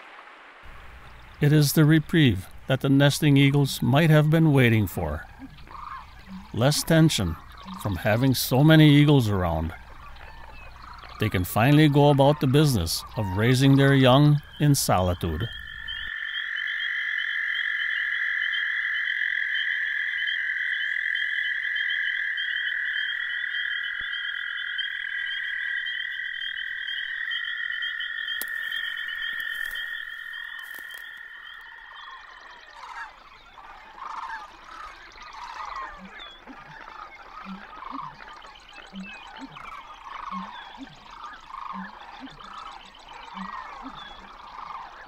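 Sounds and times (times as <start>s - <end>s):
frogs trilling: 0.7s - 45.0s.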